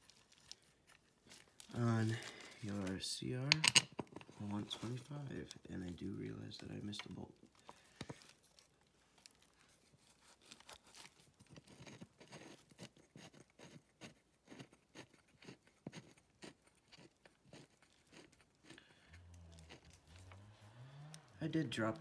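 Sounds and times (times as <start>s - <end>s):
hands handling phone clicks: 3.5s - 4.3s.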